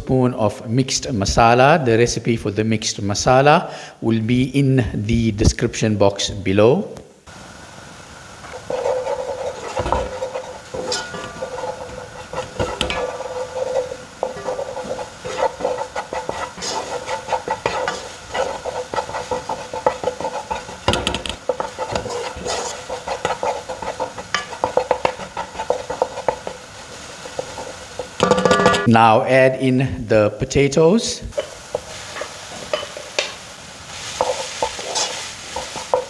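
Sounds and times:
paste sizzling in butter: 7.3 - 28.4, 31.3 - 36.0
spoon scraping a pan: 8.4 - 28.9, 31.3 - 36.0.

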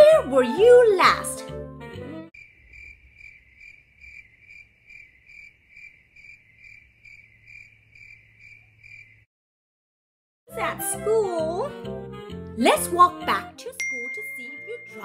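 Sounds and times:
cricket chirping: 2.4 - 9.3.

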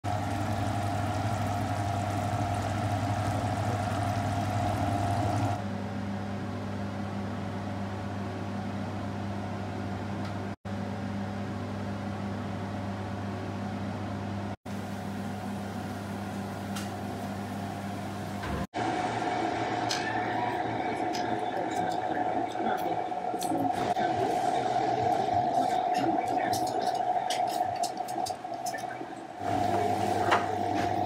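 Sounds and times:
food simmering in pot: 0.0 - 5.6
low electric hum: 0.1 - 18.6.

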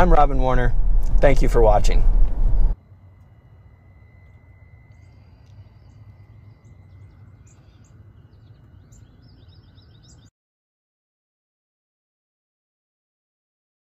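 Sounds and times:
steady low rumble: 0.0 - 10.3
small birds chirping: 3.9 - 10.3.

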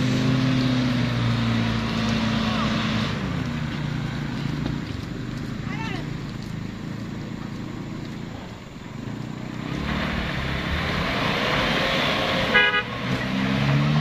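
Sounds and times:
pickup engines labouring: 0.0 - 14.0.

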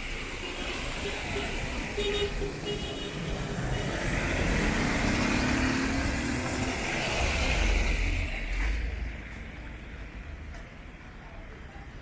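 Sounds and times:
vehicle engine rumble: 0.0 - 12.0
tyres hissing on wet road: 3.3 - 9.0.

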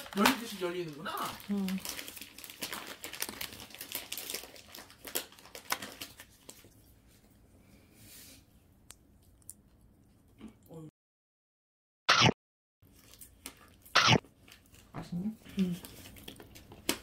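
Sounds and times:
plastic film crinkling: 0.0 - 6.7.

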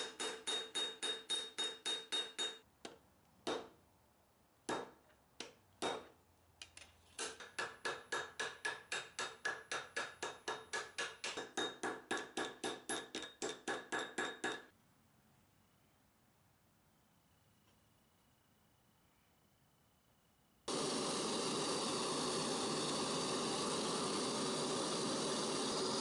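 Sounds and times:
hammer ringing on metal: 0.0 - 2.6.

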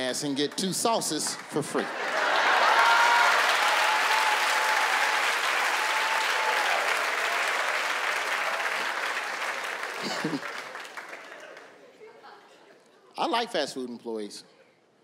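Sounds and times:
audience applauding: 1.3 - 11.8.

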